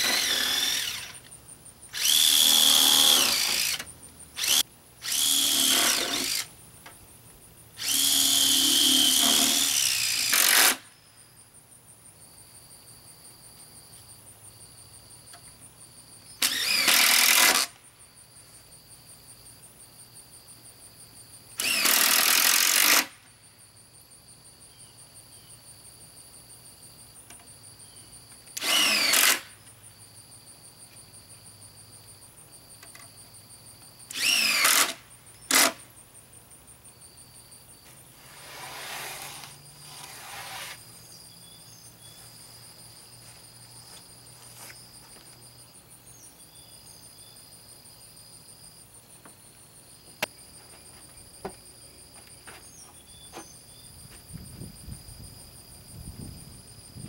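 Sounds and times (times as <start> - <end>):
power drill running in bursts: 0.0 - 1.2, 2.0 - 3.8, 4.4 - 6.5, 7.8 - 10.8, 16.4 - 17.7, 21.6 - 23.1, 28.6 - 29.4, 34.1 - 35.8.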